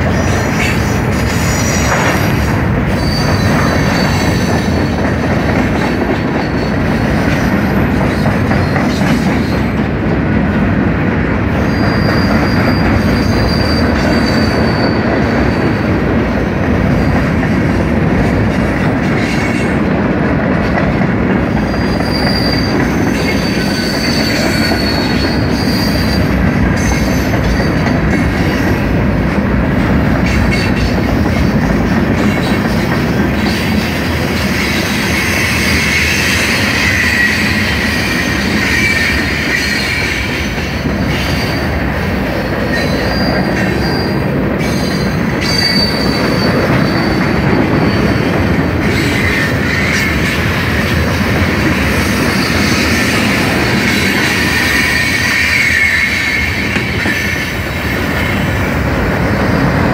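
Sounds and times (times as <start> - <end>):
train wheels rumbling on rail: 0.0 - 59.9
high wheel squeals: 2.9 - 5.0, 11.6 - 15.9, 21.6 - 27.9, 34.5 - 41.8, 42.7 - 50.2, 52.0 - 58.5.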